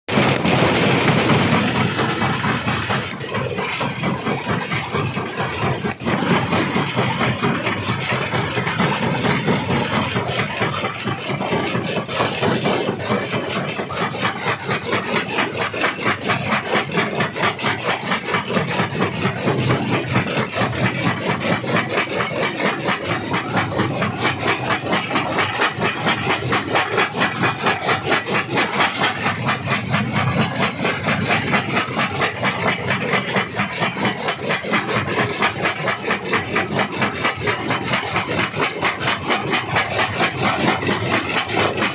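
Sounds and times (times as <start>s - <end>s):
engine running: 0.1s - 41.9s
stone crusher grinding rock: 0.1s - 41.9s.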